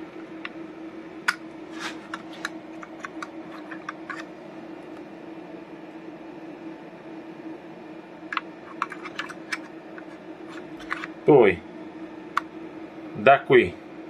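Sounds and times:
low hum: 0.0 - 14.0
fuse being handled: 1.2 - 4.3, 8.3 - 11.2.

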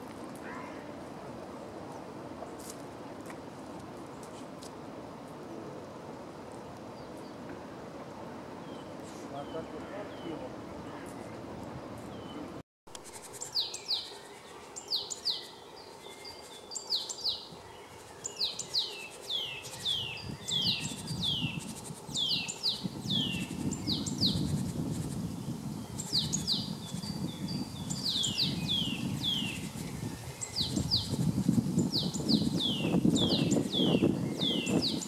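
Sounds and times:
great tit singing: 13.2 - 35.0.

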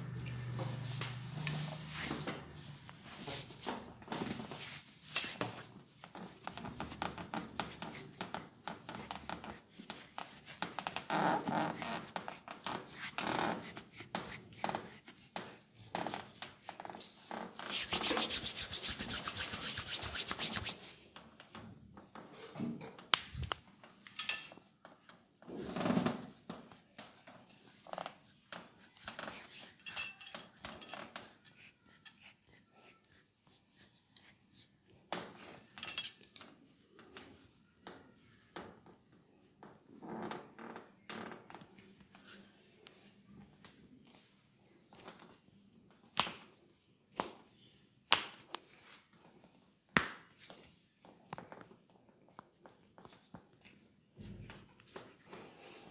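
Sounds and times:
hands rubbing skin: 11.7 - 20.9.

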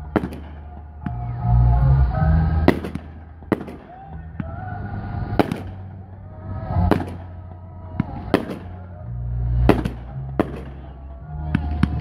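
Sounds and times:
firework shells bursting: 5.3 - 6.0.

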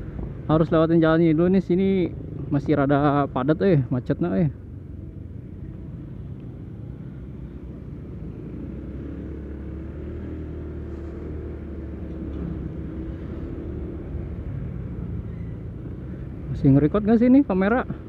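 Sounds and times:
scooter engine low rumble: 4.6 - 18.0.

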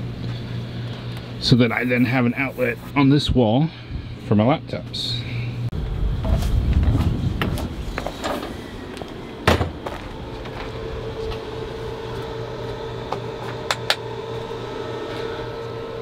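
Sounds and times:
steady electrical hum: 0.0 - 16.0
storage compartment door clunk: 9.4 - 9.8.

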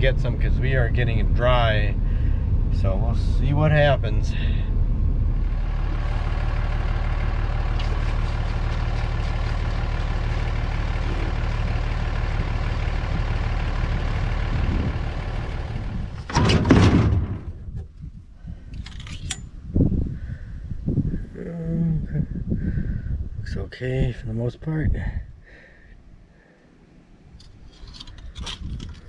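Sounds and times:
vehicle engine running: 0.0 - 16.3
loud clatter: 16.2 - 17.6.

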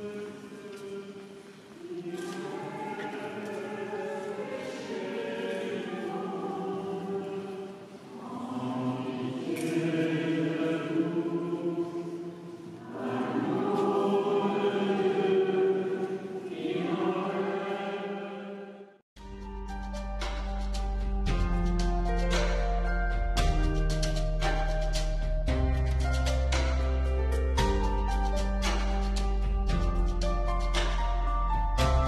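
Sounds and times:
congregation singing a hymn: 0.0 - 19.0
instrumental background music: 19.2 - 32.0.

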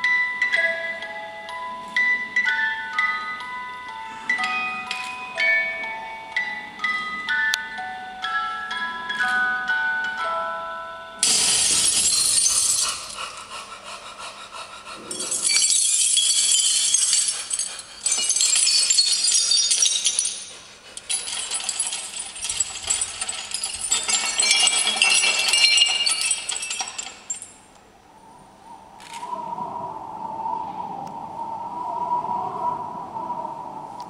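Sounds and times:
jingling rattling percussion: 11.2 - 27.7.

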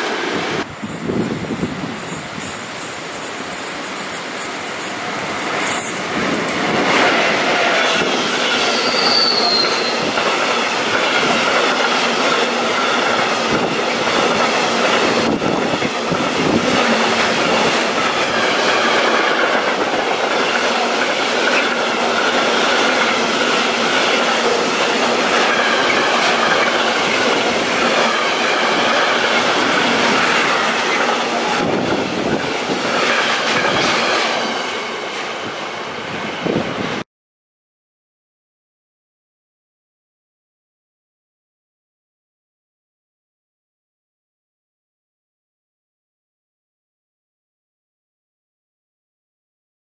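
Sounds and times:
steel wheels rolling on rails: 0.6 - 37.0
high wheel squeal: 8.4 - 10.2.

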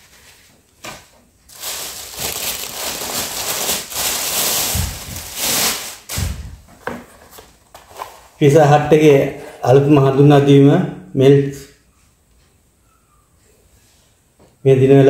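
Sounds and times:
plastic bag rustling: 0.0 - 8.4.

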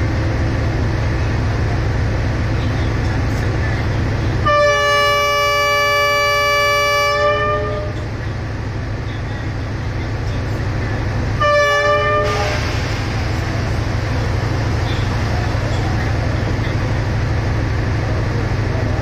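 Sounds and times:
diesel locomotive engine idling: 0.0 - 19.0
locomotive horn blast: 4.4 - 8.1, 11.3 - 13.2.

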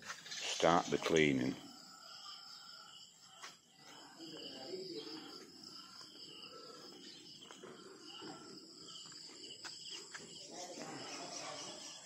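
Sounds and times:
insects chirring: 0.0 - 12.0
faint distant voices: 3.3 - 12.0.

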